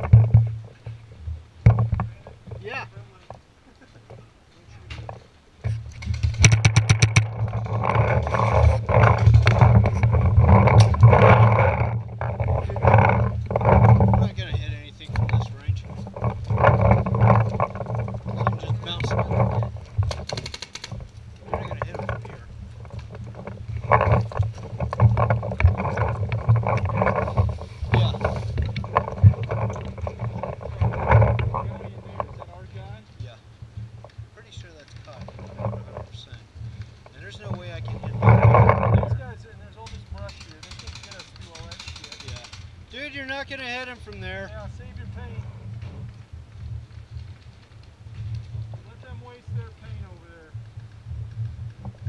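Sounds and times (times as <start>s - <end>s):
wind rumble: 0.0s - 3.2s, 4.0s - 52.0s
sharp clicks: 20.0s - 22.2s, 39.8s - 42.8s
paintball marker rapid shots: 20.1s - 20.9s, 40.6s - 42.7s.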